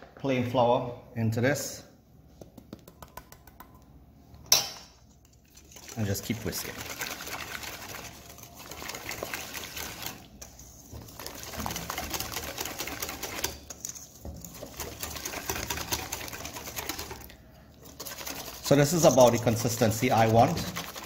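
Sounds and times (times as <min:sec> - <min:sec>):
whisk beating batter in bowl: 0:05.2 - 0:21.0.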